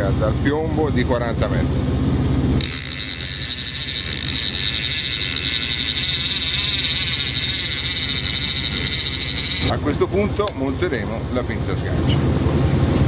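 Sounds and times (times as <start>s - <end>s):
boat engine running: 1.5s - 13.0s
fishing reel ratchet buzzing: 2.6s - 9.7s.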